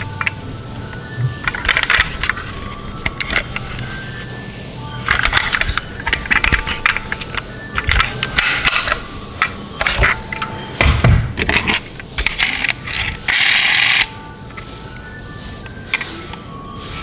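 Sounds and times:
metal toy cars clicking and clattering: 0:00.0 - 0:00.4, 0:01.4 - 0:04.0, 0:05.0 - 0:10.5, 0:11.4 - 0:14.6.

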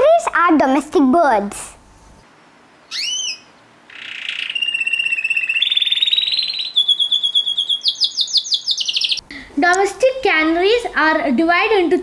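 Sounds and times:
canary singing trills: 0:02.9 - 0:09.2.

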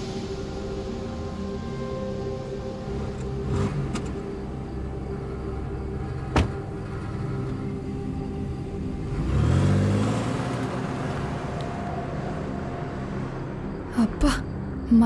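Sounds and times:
vehicle engine passing: 0:02.9 - 0:14.8.

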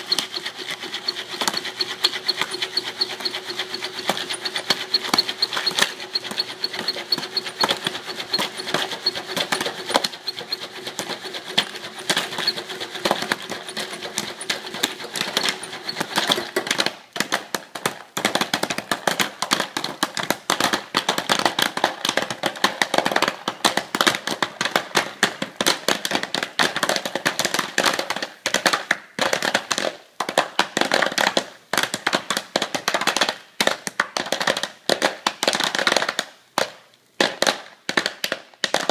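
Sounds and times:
steady hum: 0:00.0 - 0:16.4
popcorn popping: 0:00.0 - 0:38.9.

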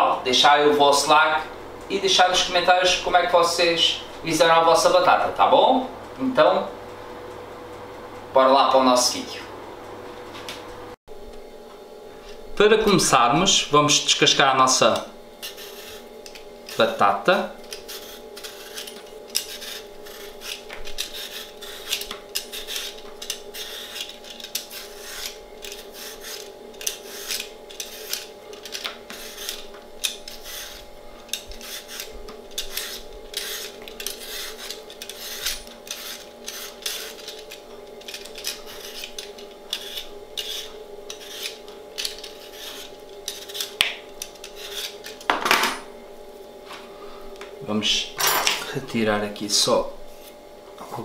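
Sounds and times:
background hum: 0:00.0 - 0:51.0
peeler scraping potato skin: 0:14.3 - 0:45.3.

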